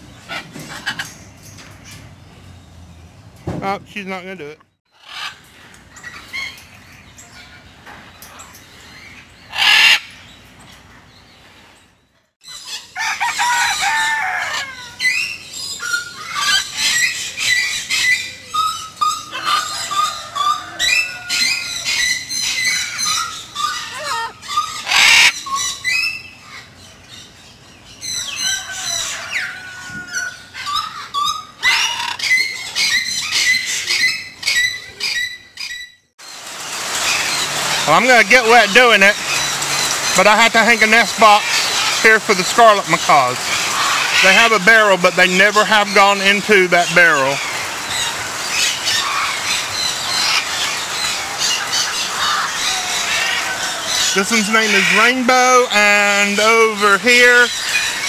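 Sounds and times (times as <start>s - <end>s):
parrots chattering: 5.0s - 5.4s, 8.3s - 10.2s, 12.5s - 27.2s, 28.0s - 35.9s, 36.8s - 58.0s
loud harsh parrot call: 9.5s - 10.1s, 12.6s - 26.7s.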